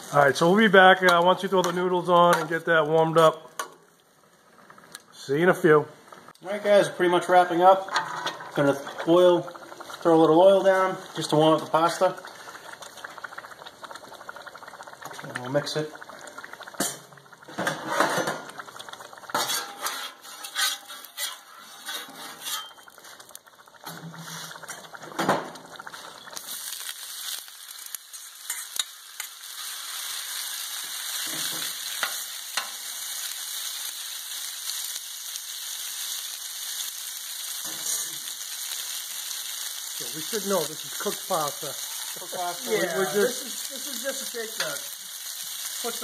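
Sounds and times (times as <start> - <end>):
pasta sizzling: 0.0 - 46.0
turner scraping steel griddle: 7.9 - 9.2, 19.3 - 24.8.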